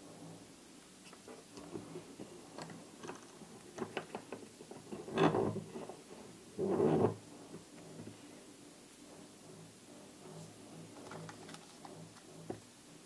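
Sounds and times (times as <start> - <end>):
metal tool scraping board: 4.8 - 8.0.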